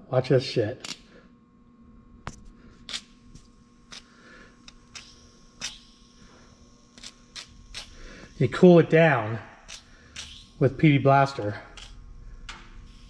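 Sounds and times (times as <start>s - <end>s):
aerosol spray hissing: 3.8s - 13.0s.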